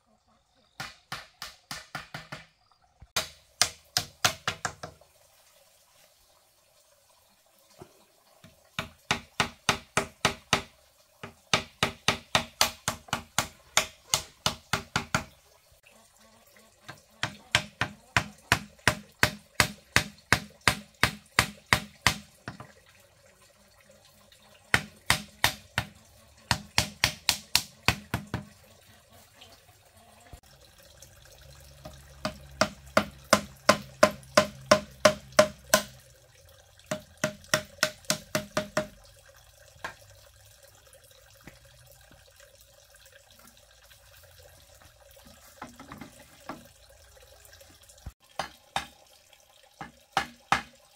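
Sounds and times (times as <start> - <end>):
hammer knocking on bamboo: 0.8 - 2.5, 3.2 - 5.0, 8.8 - 15.3, 16.9 - 22.7, 24.7 - 28.6, 31.9 - 36.0, 36.9 - 39.0, 48.3 - 49.0, 49.8 - 50.7.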